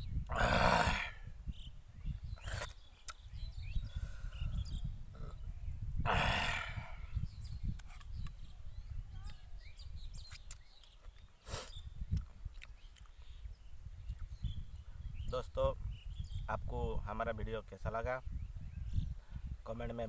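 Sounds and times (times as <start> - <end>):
wet chewing clicks: 2.4 - 3.3, 10.2 - 11.4, 12.0 - 13.4.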